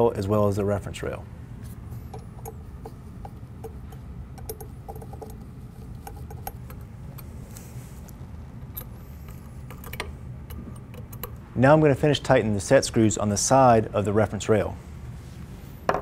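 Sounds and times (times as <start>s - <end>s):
low hum: 0.7s - 14.2s
metallic clicks and taps: 2.1s - 5.4s.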